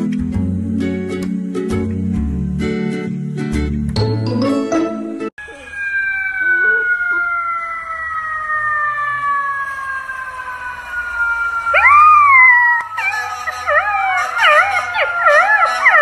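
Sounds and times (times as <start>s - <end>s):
puppy howling: 5.4s - 9.6s, 11.7s - 16.0s
siren wailing: 5.4s - 16.0s.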